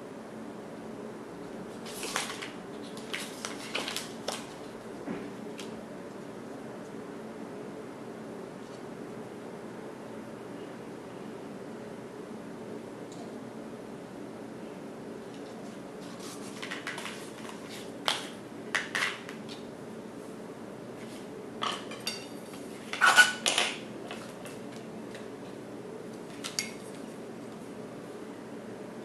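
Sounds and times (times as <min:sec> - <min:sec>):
paper and plastic rustling: 0:01.7 - 0:05.7, 0:15.4 - 0:19.6.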